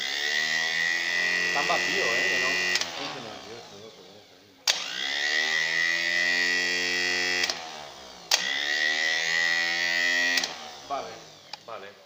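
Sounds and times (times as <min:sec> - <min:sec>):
starter motor whining: 0:00.0 - 0:12.0
sharp electrical click: 0:04.6 - 0:05.0, 0:07.4 - 0:07.6, 0:08.2 - 0:08.6, 0:10.3 - 0:10.6.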